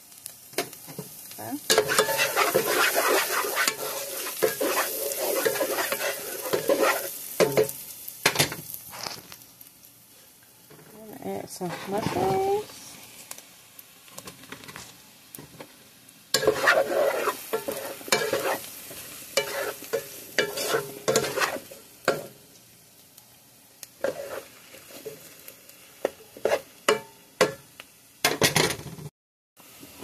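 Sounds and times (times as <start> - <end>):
frying sizzle: 0.0 - 30.0
spatula scraping a pan: 1.7 - 7.7, 11.6 - 12.6, 16.3 - 22.3, 24.0 - 25.3, 26.0 - 27.6.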